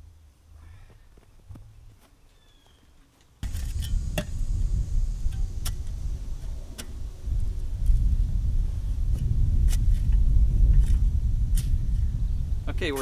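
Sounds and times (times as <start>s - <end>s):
steady low rumble: 3.4s - 13.0s.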